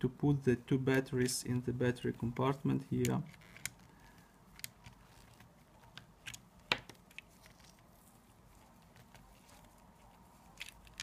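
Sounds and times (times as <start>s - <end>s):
small parts clicking on camera: 3.0s - 7.9s, 10.5s - 11.0s.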